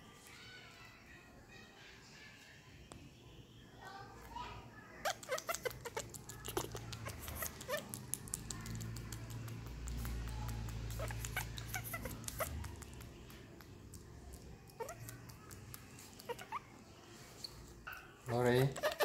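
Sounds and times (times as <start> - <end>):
baby monkey squeaking: 5.0 - 8.0, 10.0 - 13.0, 14.7 - 15.1, 16.2 - 16.7, 18.6 - 19.0.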